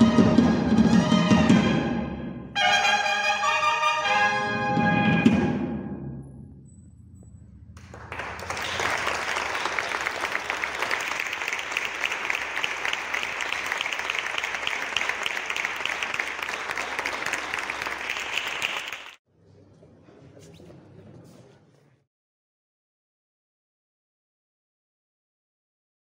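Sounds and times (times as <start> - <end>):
audience clapping: 7.8 - 19.2.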